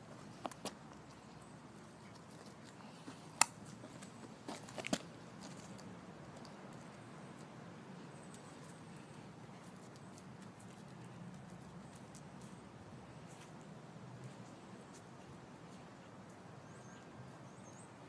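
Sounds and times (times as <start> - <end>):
low steady background noise: 0.0 - 18.0
dog claws clicking on pavement: 0.3 - 1.3, 2.0 - 7.5, 9.6 - 12.6.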